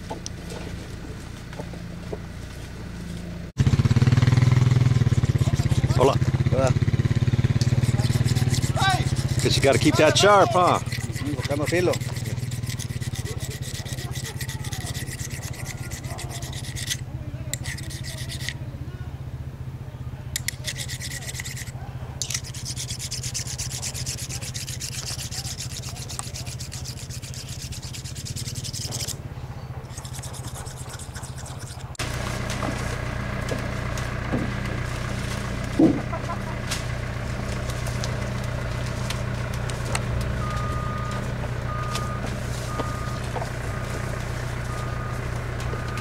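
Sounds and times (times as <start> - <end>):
steady low hum: 0.0 - 46.0
knife being sharpened: 7.6 - 17.0, 17.6 - 18.6, 20.4 - 29.2, 29.9 - 32.0.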